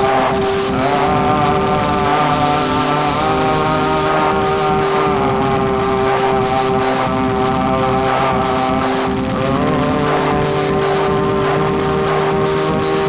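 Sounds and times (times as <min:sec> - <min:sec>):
rumbling noise bed: 0:00.0 - 0:13.0
sustained drone tones: 0:00.0 - 0:13.0.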